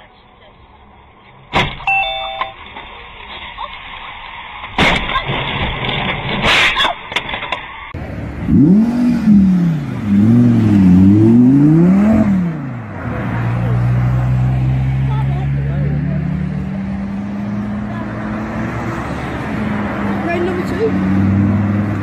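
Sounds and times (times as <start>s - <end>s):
car crash impact: 1.5s - 1.9s, 4.6s - 7.9s
crash with scraping: 3.3s - 7.9s
car engine revving: 7.9s - 22.0s.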